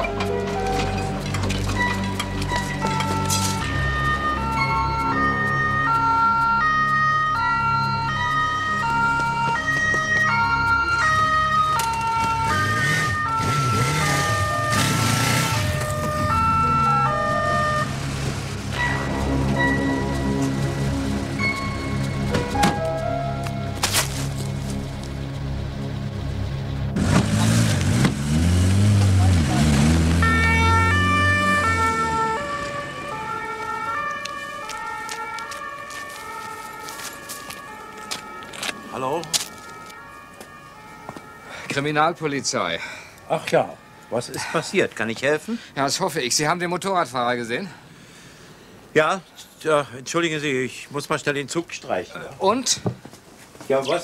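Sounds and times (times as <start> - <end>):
synthesizer melody: 0.0 - 27.0, 28.4 - 44.7
two-tone police siren: 1.8 - 23.5, 29.2 - 45.0
motorcycle engine revving: 12.4 - 16.6, 26.9 - 32.2.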